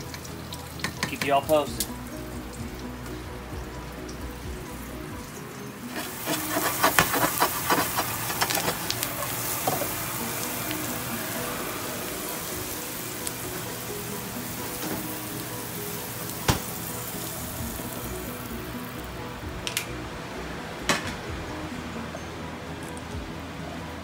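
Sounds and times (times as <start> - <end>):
asparagus sizzling in oil: 5.6 - 19.1.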